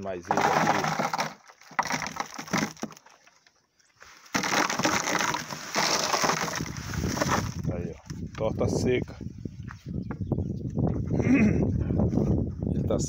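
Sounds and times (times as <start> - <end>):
flakes pouring into trough: 0.2 - 3.0, 4.3 - 7.7.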